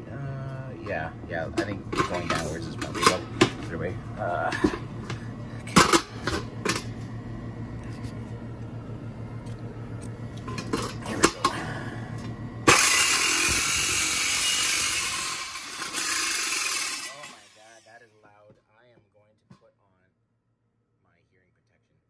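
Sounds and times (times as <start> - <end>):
jigsaw cutting sheet metal: 12.7 - 18.0.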